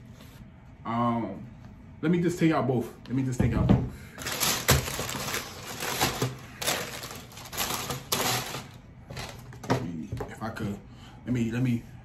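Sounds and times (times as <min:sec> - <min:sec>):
tissue paper crinkling and rustling: 0:04.2 - 0:09.4.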